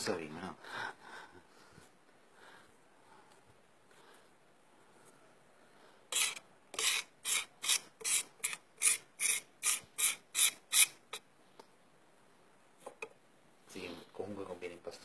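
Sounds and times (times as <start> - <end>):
fat scraping on marble slab: 6.1 - 11.0.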